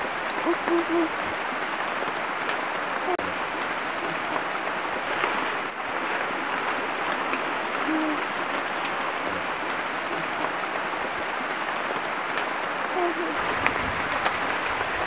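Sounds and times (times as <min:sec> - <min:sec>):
river rushing: 0:00.0 - 0:15.0
bird short low calls: 0:00.4 - 0:01.2, 0:07.8 - 0:08.3, 0:12.9 - 0:13.4.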